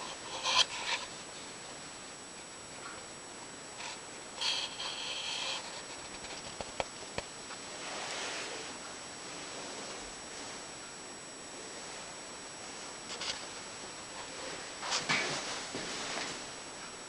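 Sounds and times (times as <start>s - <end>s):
faint high-pitched whine: 0.0s - 17.0s
rustling and rubbing: 3.8s - 10.7s, 12.7s - 16.5s.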